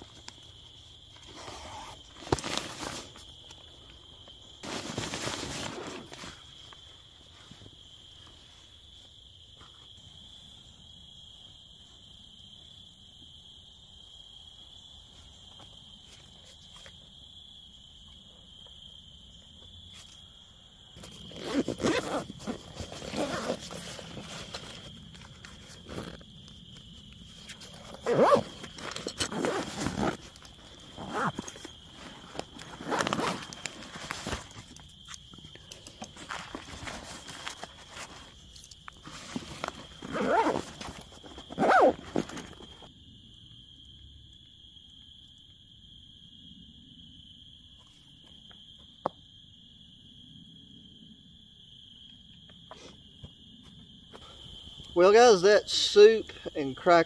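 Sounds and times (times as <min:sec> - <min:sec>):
high insect trill: 0:00.0 - 0:57.0
backpack rustling: 0:00.6 - 0:06.6, 0:21.0 - 0:42.9.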